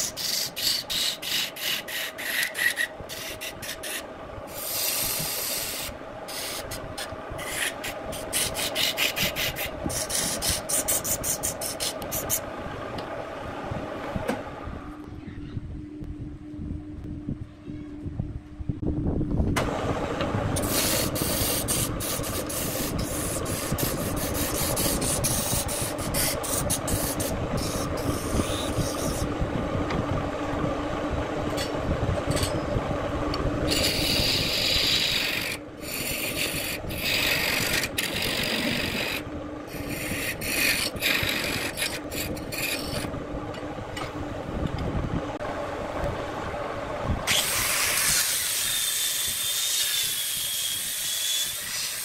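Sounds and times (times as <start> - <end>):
rasping scrape on spinning wood: 0.0 - 12.5, 20.6 - 29.3, 33.7 - 43.1, 47.3 - 52.0
wood lathe humming: 0.0 - 13.4, 19.6 - 52.0.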